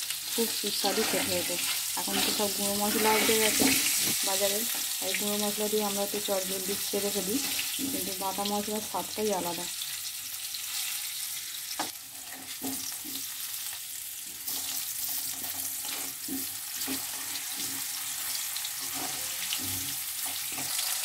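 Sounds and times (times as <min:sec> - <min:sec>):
potatoes sizzling in oil: 0:00.0 - 0:21.0
metal spatula scraping pan: 0:00.5 - 0:04.9, 0:14.5 - 0:21.0.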